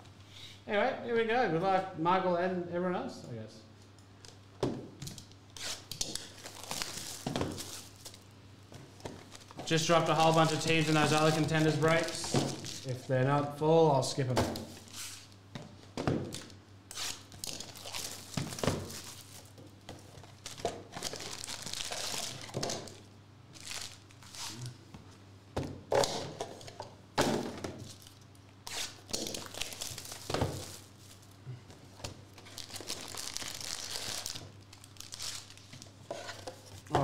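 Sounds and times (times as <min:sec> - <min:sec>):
foil packs crinkling: 0:06.0 - 0:08.2, 0:09.2 - 0:13.1, 0:16.3 - 0:19.6, 0:20.2 - 0:24.7, 0:28.8 - 0:31.4, 0:32.3 - 0:36.0
packs thunking on table: 0:30.2 - 0:30.8.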